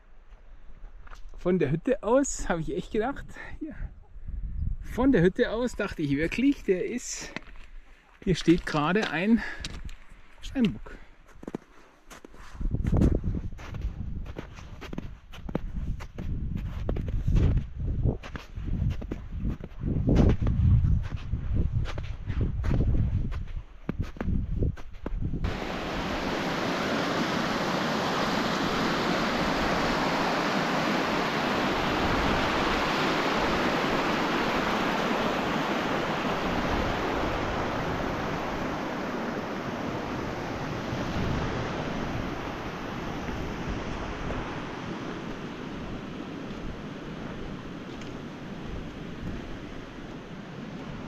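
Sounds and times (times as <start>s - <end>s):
water rushing: 25.5s - 51.0s.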